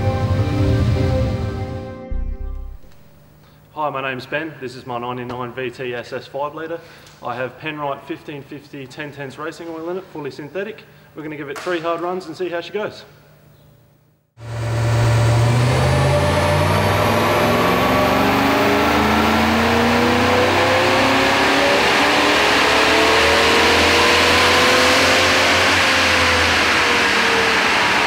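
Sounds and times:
car engine at full throttle: 14.4 - 28.0.

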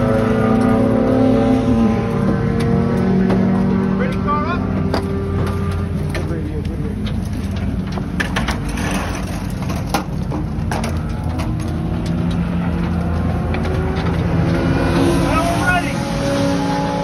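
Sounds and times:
low engine drone: 0.0 - 17.0
clicks and clunks of pit work: 2.0 - 15.0.

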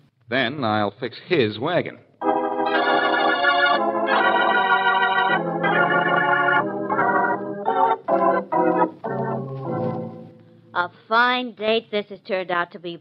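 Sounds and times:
organ chords: 2.2 - 10.7.

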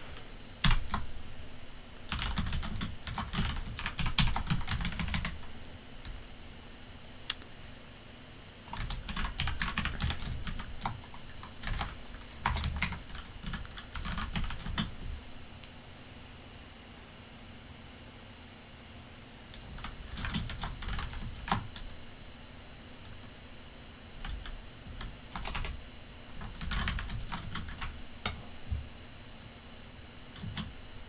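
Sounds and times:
typing on computer keyboard: 0.6 - 1.1, 2.1 - 5.5, 8.7 - 14.9, 19.7 - 21.9, 24.2 - 25.8, 26.4 - 27.9, 30.4 - 30.7.

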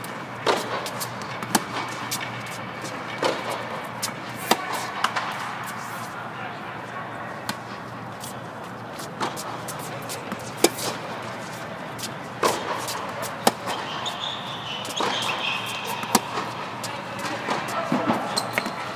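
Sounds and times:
tennis ball bouncing on court: 0.4 - 5.5, 9.0 - 18.9
tennis ball struck by rackets: 0.4 - 5.5, 9.1 - 11.1, 12.4 - 14.0, 14.9 - 16.6.

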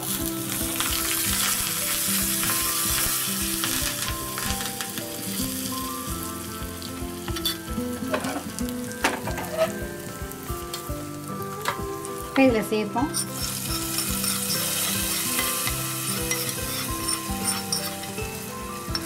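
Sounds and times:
leaves sizzling in hot oil: 0.0 - 19.0.

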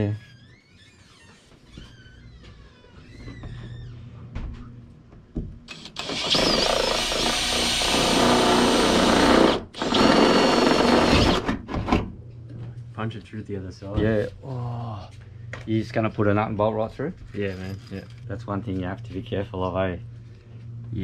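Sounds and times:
power drill drilling into sheet metal: 5.7 - 11.6.

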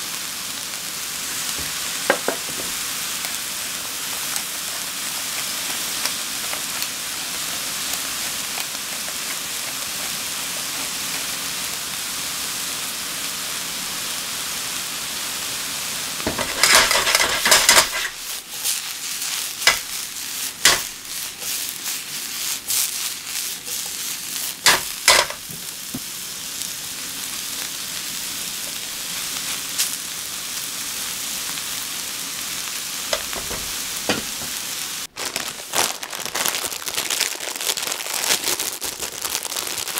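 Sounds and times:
vegetables sizzling in oil: 0.0 - 39.9
vegetables sliding in tossed pan: 1.3 - 12.0, 16.2 - 26.2.

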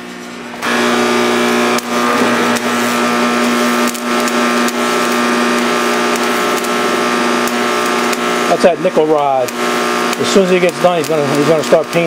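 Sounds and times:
welding arc crackling: 0.6 - 12.0
sharp pops: 1.7 - 8.5.

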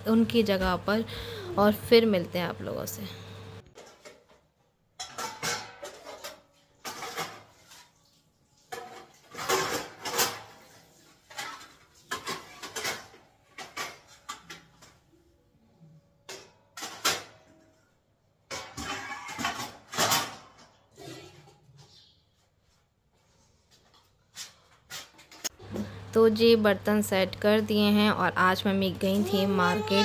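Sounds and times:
metal utensils clinking: 5.0 - 7.7.

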